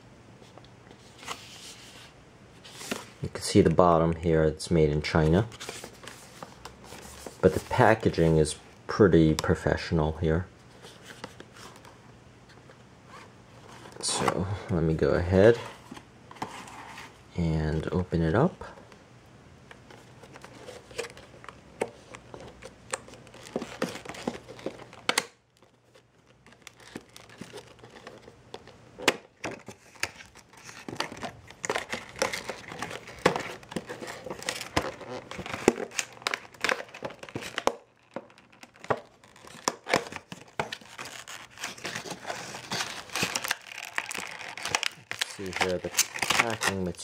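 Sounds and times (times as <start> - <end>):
plastic packaging crinkling: 19.8 - 47.0.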